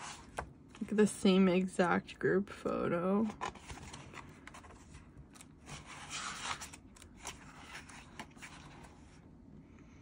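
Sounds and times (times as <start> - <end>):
pages turning with paper rustling: 3.2 - 9.2.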